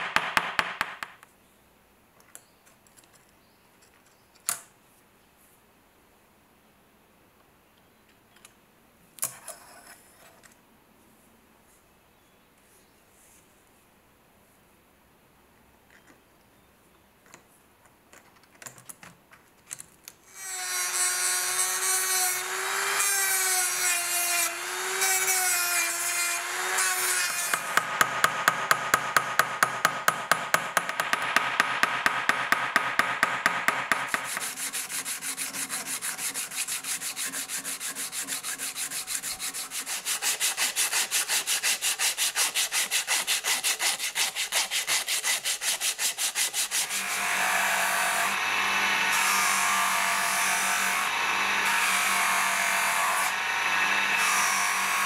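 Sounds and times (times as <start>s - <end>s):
hammer tapping metal pins: 27.5s - 34.3s.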